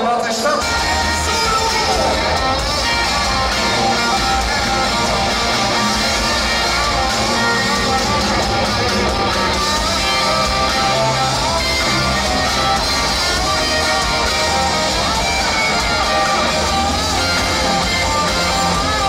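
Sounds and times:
electric guitar: 0.0 - 19.0
live band playing amplified music: 0.0 - 19.0.

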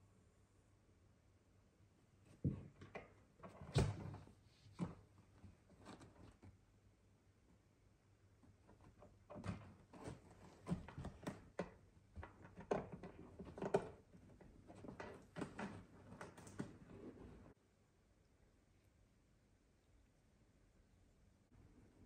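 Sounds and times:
soft knocks and thumps: 2.3 - 6.5.

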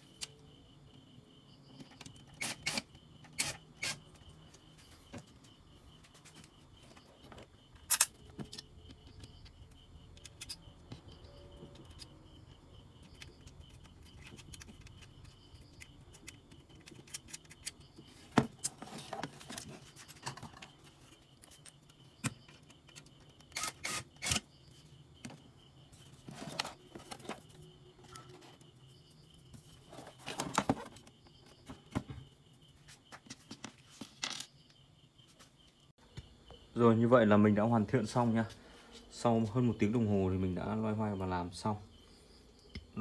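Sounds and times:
clicks and knocks of parts: 13.0 - 20.7.

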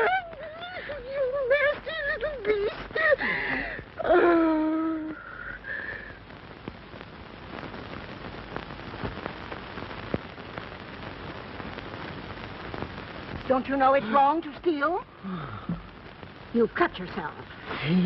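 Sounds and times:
person whimpering and wailing: 0.0 - 3.2, 4.0 - 5.2
film soundtrack hiss and crackle: 0.0 - 18.0.

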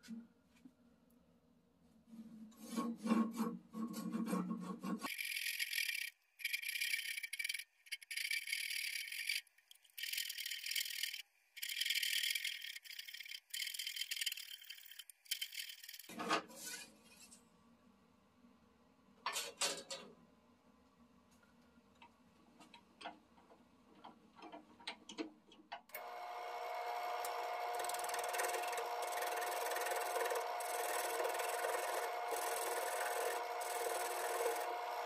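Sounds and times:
handsaw cutting wood: 27.6 - 34.9.

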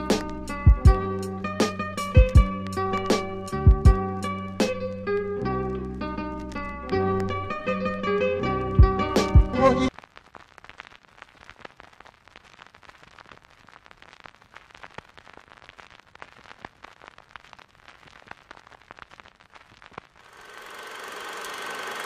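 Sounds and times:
guitar music: 0.0 - 9.9
record surface crackling: 0.0 - 22.0
deep bass hits: 0.6 - 1.2, 3.5 - 4.8, 8.7 - 9.6.

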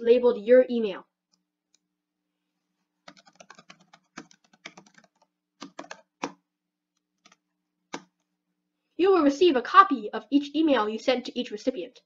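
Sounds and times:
typing on keyboard: 3.0 - 6.4, 7.2 - 8.2.

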